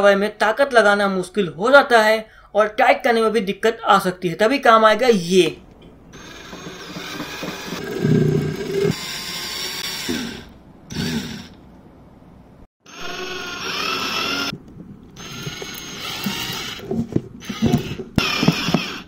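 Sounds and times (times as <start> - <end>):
cordless drill whining: 6.1 - 11.6, 12.9 - 14.6, 15.2 - 19.0.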